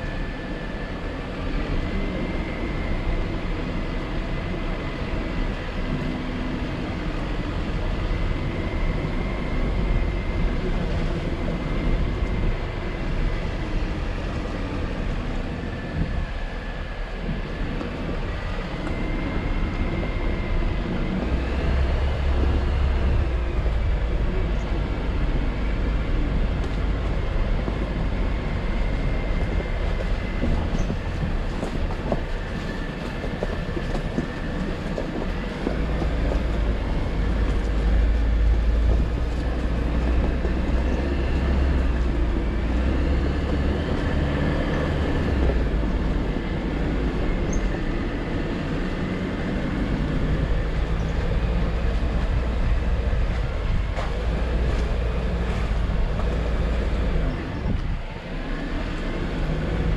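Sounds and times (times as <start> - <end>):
car engine running: 0.0 - 59.9
tyres rumbling over rough ground: 0.0 - 59.9.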